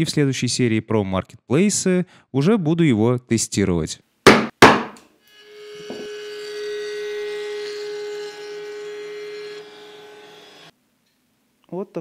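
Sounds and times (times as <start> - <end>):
router high-pitched whine: 5.3 - 10.7.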